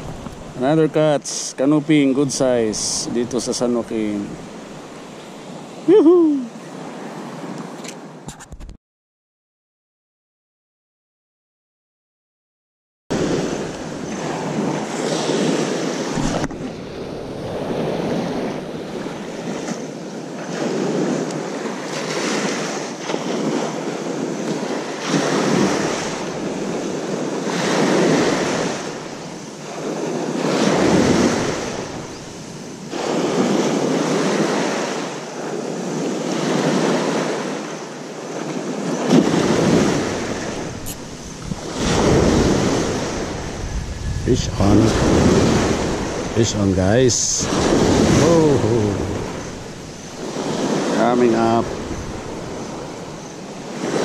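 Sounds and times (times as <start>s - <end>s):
wind buffeting microphone: 0.0s - 0.6s, 13.1s - 34.7s, 38.5s - 54.0s
waves washing onto rocky shore: 13.1s - 54.0s.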